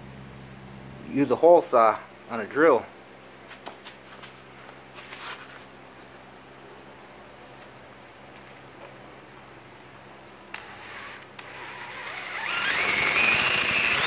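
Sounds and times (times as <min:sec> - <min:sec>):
low room hum: 0:00.0 - 0:14.0
rustling scrape: 0:03.5 - 0:05.7.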